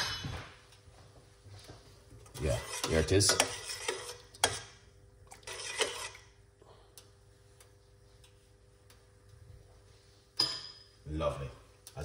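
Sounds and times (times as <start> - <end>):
low steady hum: 0.0 - 12.0
metal spoon stirring in saucepan: 2.2 - 4.7, 5.3 - 6.3.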